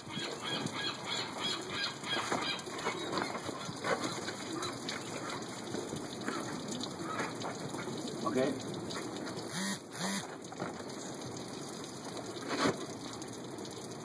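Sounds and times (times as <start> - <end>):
birds calling: 0.0 - 8.2.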